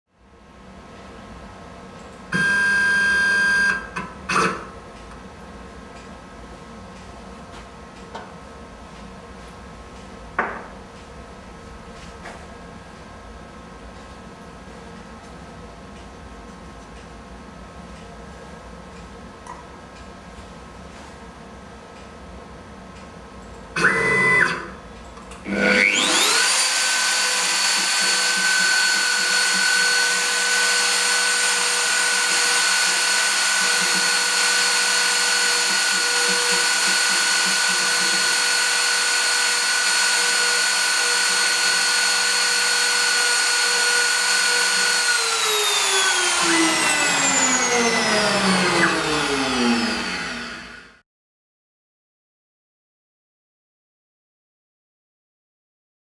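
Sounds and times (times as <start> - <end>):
cnc router spindle whine: 2.3 - 4.7, 23.8 - 24.7, 25.4 - 51.0.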